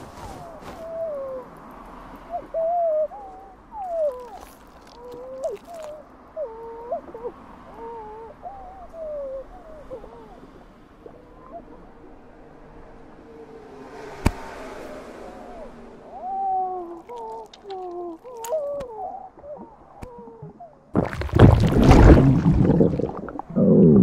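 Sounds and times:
wet gurgles: 19.4s - 24.0s
loud heavy gulp: 20.4s - 24.0s.

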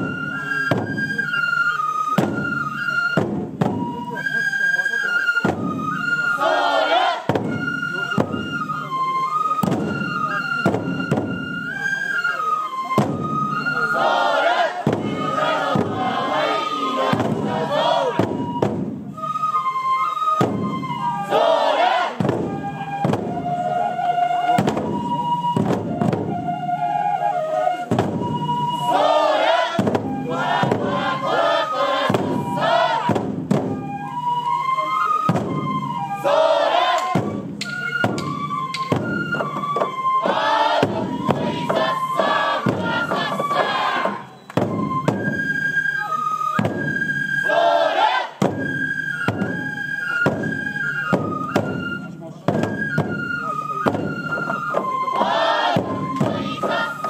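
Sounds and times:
taiko drums beaten: 0.0s - 4.5s, 5.3s - 12.0s, 12.8s - 27.0s, 27.8s - 57.0s
bamboo flutes melody: 0.0s - 57.0s
voices shouting calls: 6.0s - 7.4s, 13.7s - 18.7s, 21.0s - 22.2s, 28.7s - 33.2s, 36.0s - 37.4s, 39.8s - 44.4s, 47.3s - 48.4s, 54.5s - 57.0s.

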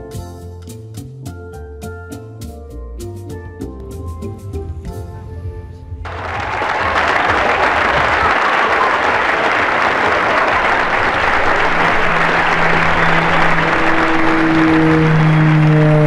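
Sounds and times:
crowd clapping: 6.1s - 16.0s
held music notes: 10.6s - 16.0s.

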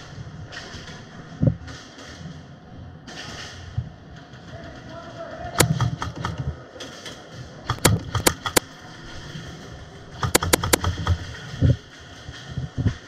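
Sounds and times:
airsoft guns firing: 5.5s - 6.6s, 7.7s - 8.7s, 10.2s - 11.4s.

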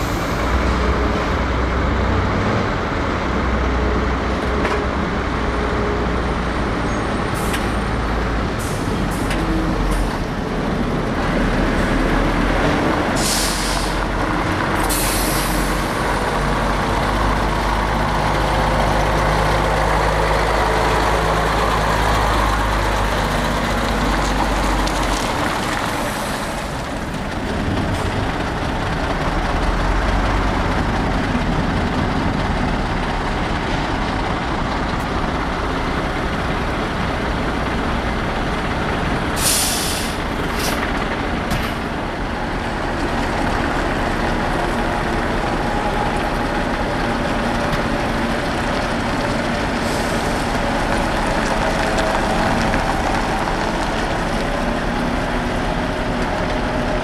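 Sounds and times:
diesel truck engine running: 0.0s - 57.0s
air brakes hissing: 13.2s - 14.1s, 14.8s - 16.0s, 39.4s - 40.8s, 49.8s - 50.5s.

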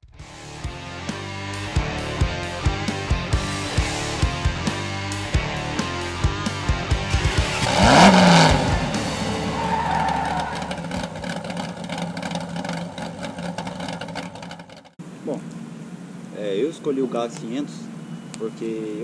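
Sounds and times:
intro music with drum hits: 0.0s - 9.7s
car revving: 3.4s - 15.0s
tyre screech: 7.6s - 12.5s.

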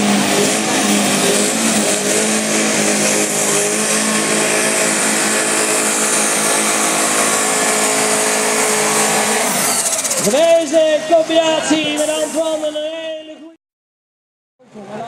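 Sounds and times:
tractor engine at high revs: 0.0s - 11.2s.

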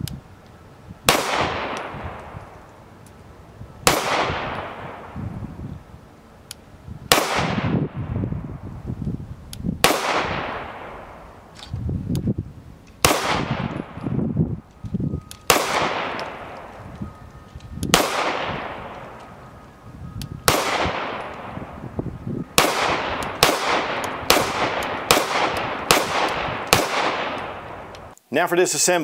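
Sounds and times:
pistol shots with ringing tail: 1.1s - 2.4s, 3.8s - 5.2s, 7.1s - 8.2s, 9.8s - 11.4s, 13.0s - 14.2s, 15.2s - 17.0s, 17.9s - 19.5s, 20.4s - 28.0s.

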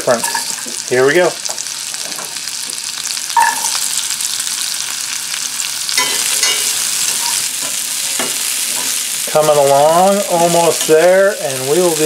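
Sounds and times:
food sizzling in a skillet: 0.0s - 12.0s.

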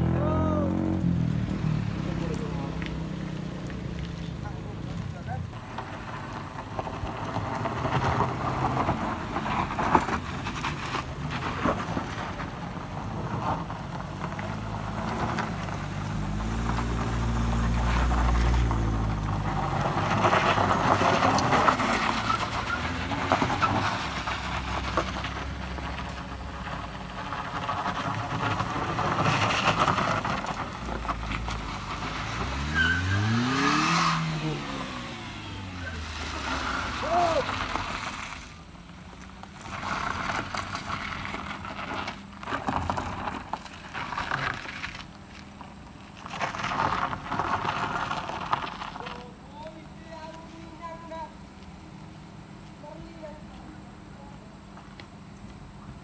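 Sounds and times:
car engine revving: 0.0s - 38.7s
tyres crunching on gravel: 0.0s - 53.8s
car engines labouring: 0.0s - 56.0s.

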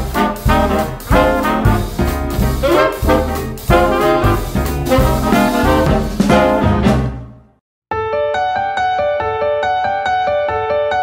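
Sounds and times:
swing music with brass horns: 0.0s - 7.5s.

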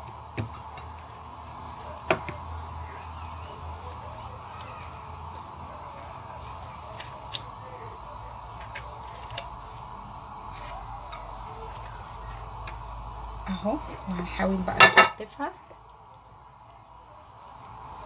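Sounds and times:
steady low hum: 0.0s - 18.0s
wet squishing of stuffing: 2.6s - 12.8s.

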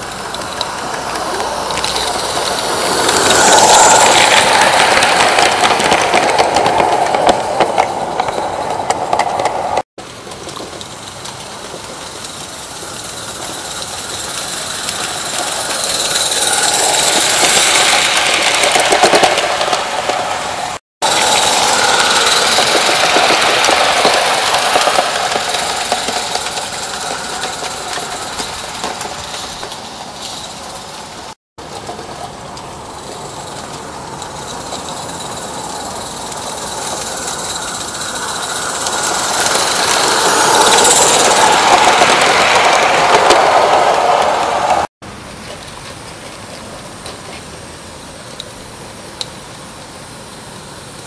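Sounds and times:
steam locomotive chuffing: 0.0s - 44.9s.

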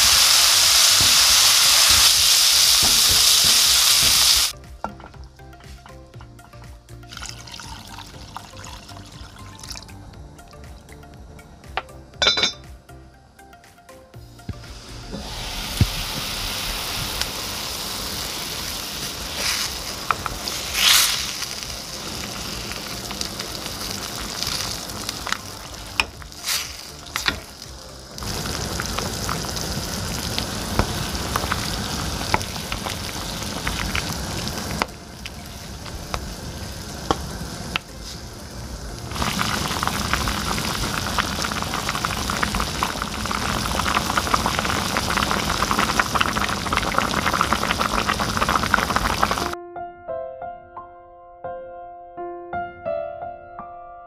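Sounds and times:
stew bubbling in a pan: 0.0s - 4.6s, 14.6s - 49.6s.

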